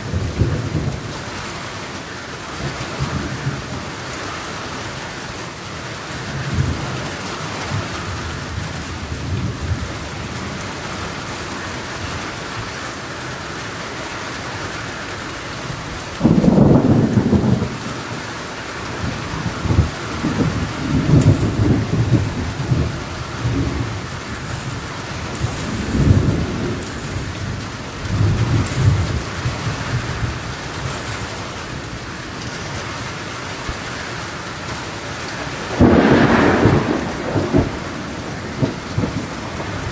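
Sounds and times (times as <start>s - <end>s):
thunder rumbling: 0.0s - 1.7s, 15.7s - 39.9s
rain falling on trees: 0.0s - 39.9s.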